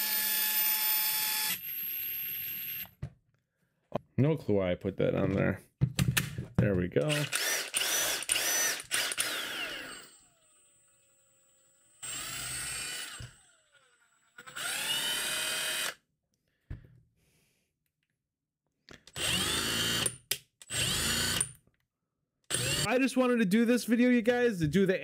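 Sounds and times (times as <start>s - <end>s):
impact driver motor whining: 7.1s - 16.0s, 19.1s - 21.5s, 22.5s - 22.9s.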